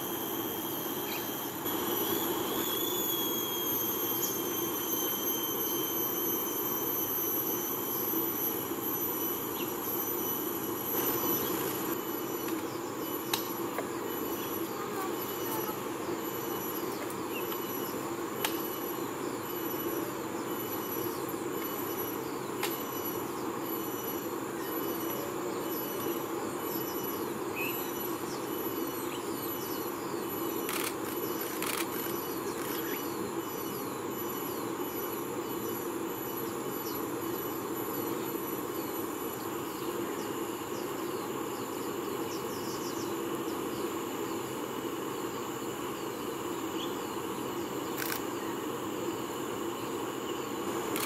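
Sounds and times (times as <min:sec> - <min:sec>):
insects trilling: 0:00.0 - 0:51.0
sharp clicks: 0:30.6 - 0:32.8, 0:48.0 - 0:48.3.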